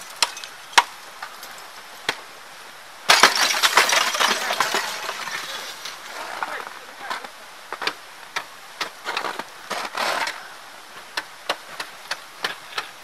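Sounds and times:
ice cracking and crunching: 0:03.1 - 0:07.3.

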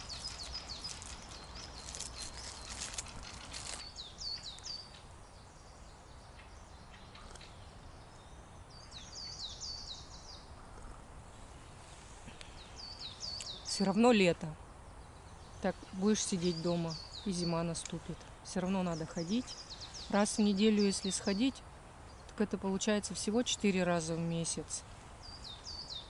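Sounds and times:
rustling noise: 0:00.0 - 0:04.7, 0:11.3 - 0:12.6
thrushes calling: 0:00.0 - 0:05.6, 0:09.0 - 0:26.0.

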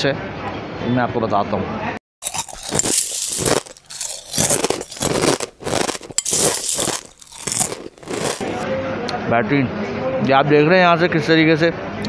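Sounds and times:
man chewing crispy food: 0:02.2 - 0:08.6.

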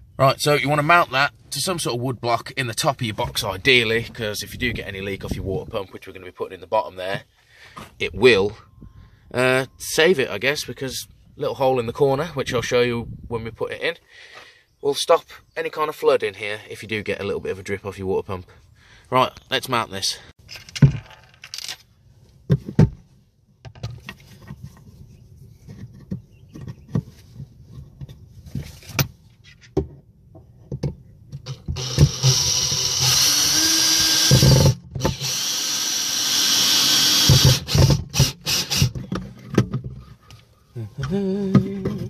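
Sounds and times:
power drill driving screws into wood: 0:31.5 - 0:39.1.

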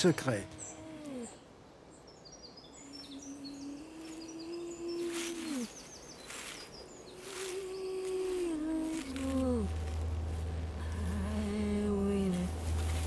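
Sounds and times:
birds chirping and trilling: 0:00.0 - 0:13.0
background music low tone: 0:06.3 - 0:13.0.

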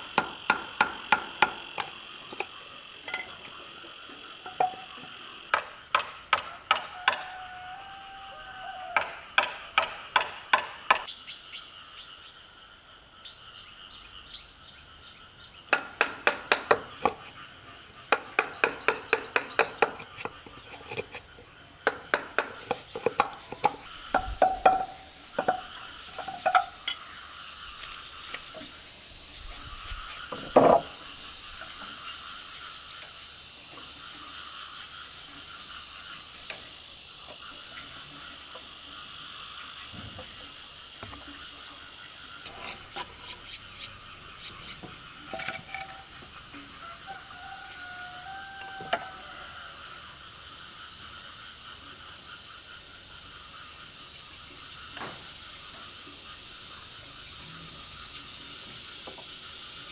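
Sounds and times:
wooden mallet striking chisel: 0:00.2 - 0:01.6, 0:09.0 - 0:11.0, 0:15.7 - 0:17.2, 0:21.8 - 0:26.8.

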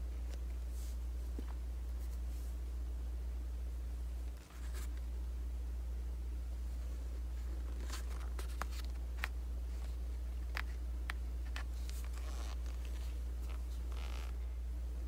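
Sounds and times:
steady low hum: 0:00.0 - 0:15.0
paper rustle: 0:07.2 - 0:10.7.

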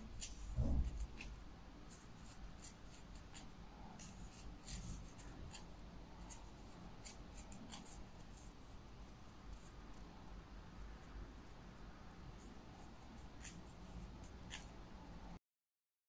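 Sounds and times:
crochet hook pulling yarn: 0:00.0 - 0:08.6, 0:12.4 - 0:15.0
soft low thump: 0:00.5 - 0:01.2.

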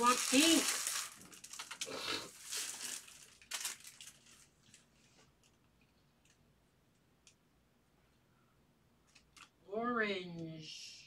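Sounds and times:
card pack wrappers crinkling: 0:00.0 - 0:05.6.

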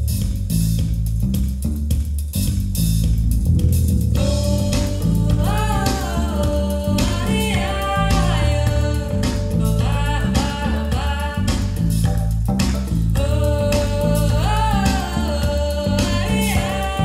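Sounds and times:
pop song over loudspeakers: 0:04.2 - 0:17.0.

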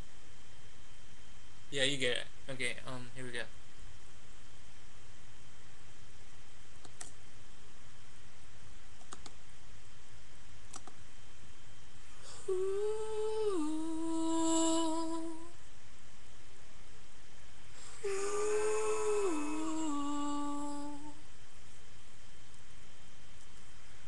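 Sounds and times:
microphone hiss: 0:00.0 - 0:24.0
man humming: 0:12.2 - 0:15.6, 0:17.8 - 0:21.2.

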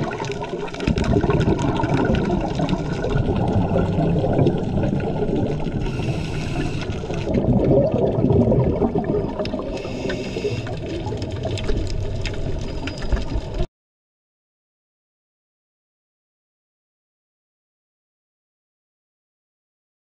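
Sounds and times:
exhaled bubbles rumbling: 0:00.0 - 0:13.7
low underwater rush: 0:00.0 - 0:13.7
diver inhaling through regulator: 0:05.7 - 0:07.4, 0:09.6 - 0:11.0.

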